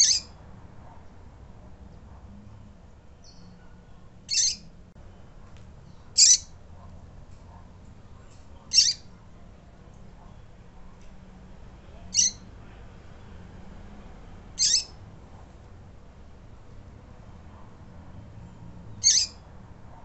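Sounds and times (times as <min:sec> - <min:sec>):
high bird call notes: 0:04.3 - 0:04.7, 0:06.2 - 0:06.5, 0:08.7 - 0:09.1, 0:12.1 - 0:12.4, 0:14.6 - 0:15.0.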